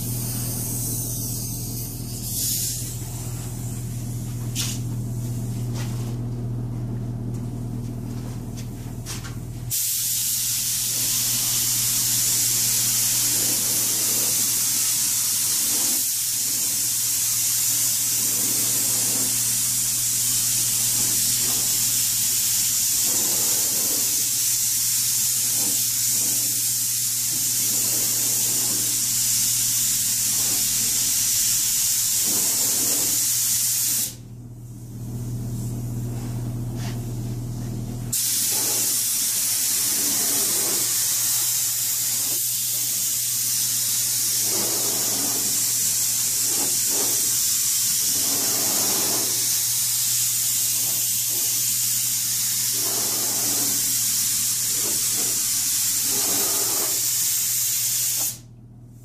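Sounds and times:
paint spray gun hissing: 0.0 - 3.1, 9.7 - 34.2, 38.1 - 58.4.

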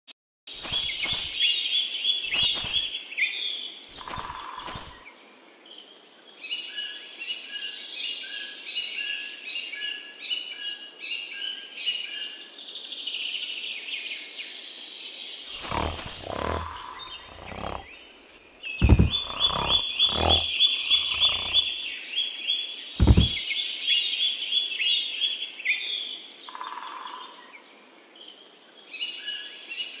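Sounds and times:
bird-like chirping and twittering: 0.5 - 8.4, 15.4 - 27.3
dull knocks: 18.8 - 21.6, 23.0 - 23.4.

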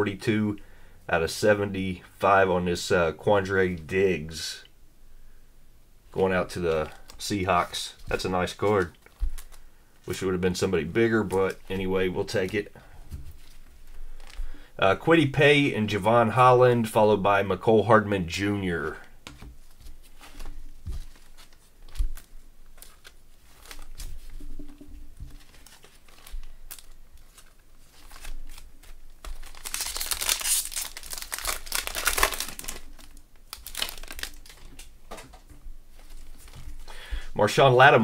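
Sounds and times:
plastic card sleeve crinkling: 6.1 - 15.0, 18.8 - 37.2.

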